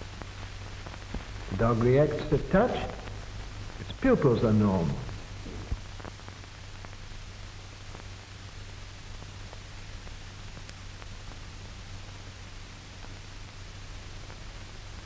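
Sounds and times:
faint crackles: 0.0 - 15.0
steady hiss: 0.0 - 15.0
low hum: 1.1 - 6.1.

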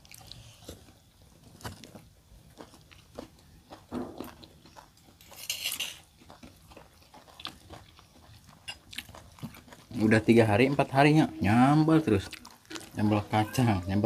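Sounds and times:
soft chewing: 0.0 - 13.6
metal spoon scraping stone mortar: 5.2 - 6.1.

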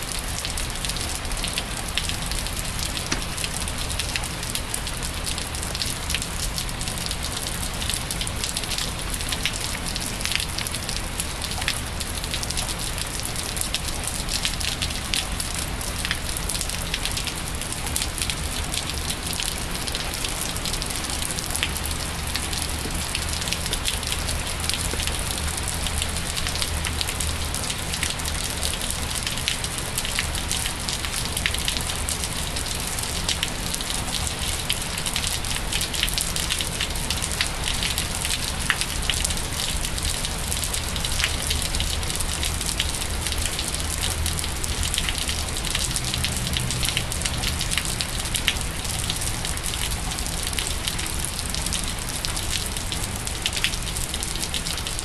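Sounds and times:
rain falling on wet pavement: 0.0 - 55.0.

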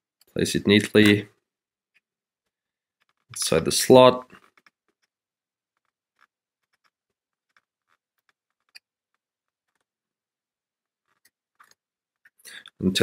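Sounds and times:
faint clicks and taps: 0.2 - 3.6, 4.2 - 12.8.

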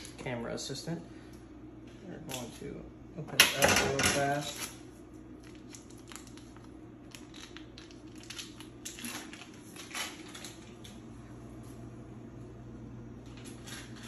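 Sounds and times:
foil wrapper crinkling and tearing: 4.4 - 11.0.

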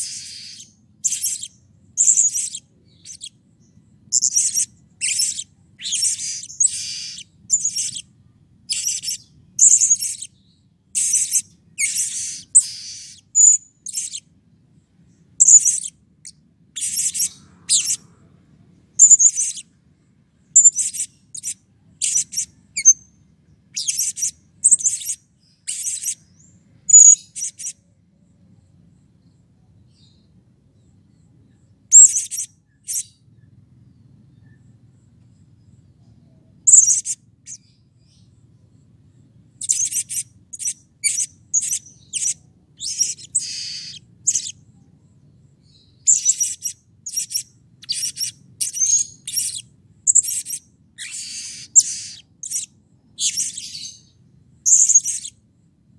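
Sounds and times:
parrot chirping: 0.0 - 14.3, 15.4 - 18.1, 19.0 - 19.7, 20.5 - 23.1, 23.7 - 26.3, 26.9 - 27.8, 31.9 - 33.2, 36.7 - 37.8, 39.6 - 44.6, 45.6 - 55.4.

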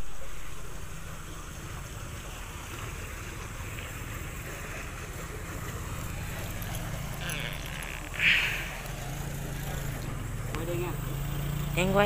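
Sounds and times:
motor rumbling: 0.0 - 12.0.

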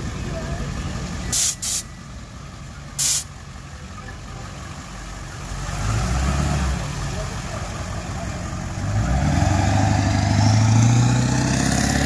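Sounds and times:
truck engine rumble driving past: 0.0 - 12.0
air hissing: 1.3 - 1.9, 3.0 - 3.3.

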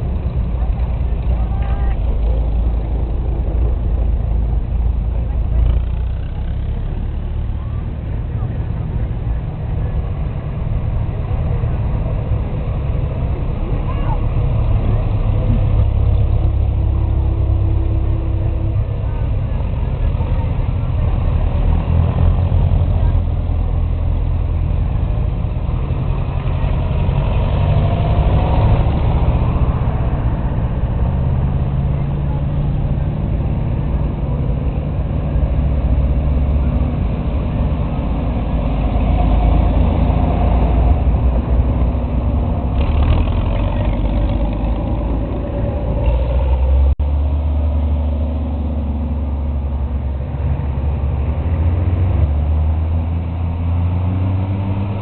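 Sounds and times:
tractor engines running: 0.0 - 55.0.

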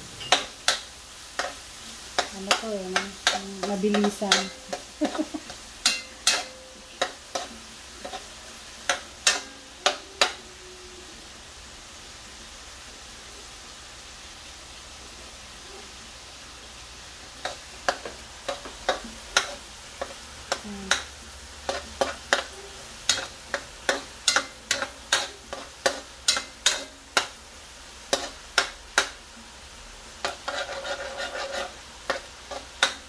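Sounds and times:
low sizzle: 0.0 - 33.0
metal spatula scraping wok: 0.1 - 10.4, 17.4 - 21.1, 21.7 - 27.4, 28.1 - 29.1, 30.2 - 33.0.

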